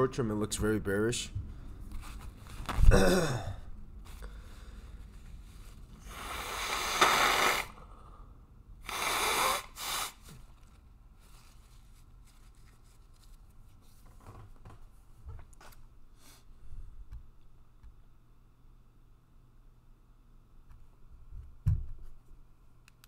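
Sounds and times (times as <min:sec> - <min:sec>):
person breathing out heavily: 0:02.9 - 0:05.0, 0:06.0 - 0:08.5.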